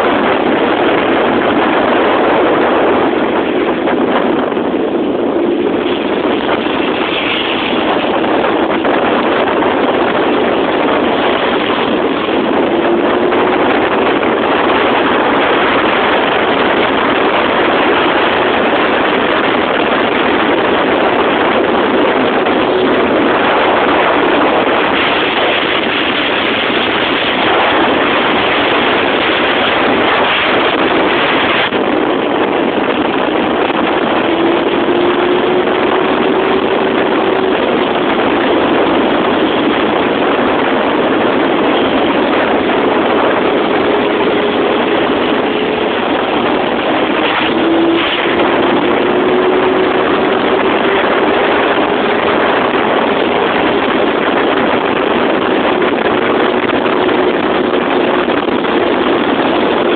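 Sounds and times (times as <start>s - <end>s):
wind rushing on microphone: 0.0s - 59.9s
motorcycle engine: 9.9s - 29.9s, 31.6s - 53.7s.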